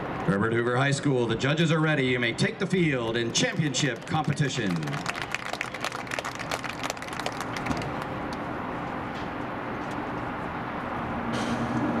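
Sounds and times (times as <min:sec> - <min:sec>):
applause from stands: 0:03.2 - 0:08.4.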